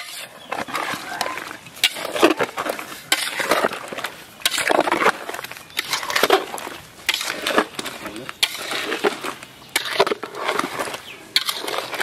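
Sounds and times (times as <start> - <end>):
metal spoon scraping a pot: 0.0 - 12.0
wet squelching of hand mixing fish: 0.4 - 12.0.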